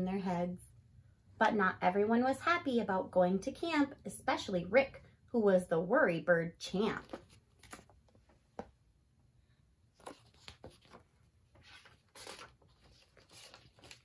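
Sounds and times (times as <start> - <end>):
soft handling noises: 6.9 - 8.9, 9.8 - 14.0
paper page turning: 7.0 - 8.2, 9.9 - 14.0.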